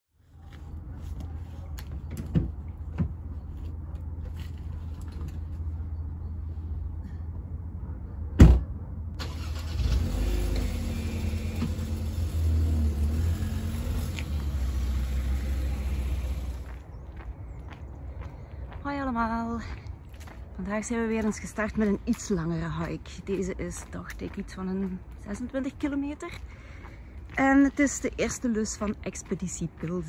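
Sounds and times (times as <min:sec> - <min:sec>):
car engine starting and idling: 0:09.2 - 0:16.7.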